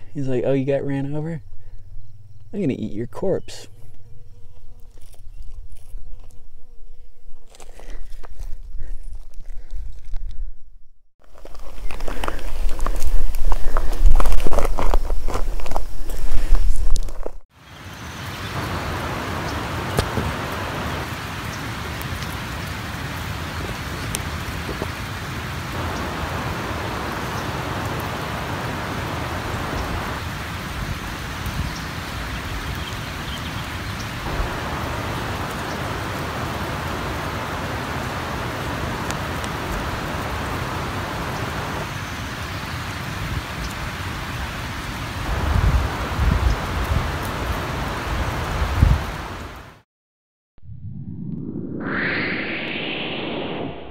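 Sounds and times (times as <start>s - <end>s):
crickets crawling over dry leaves: 1.9s - 10.2s, 11.2s - 46.4s.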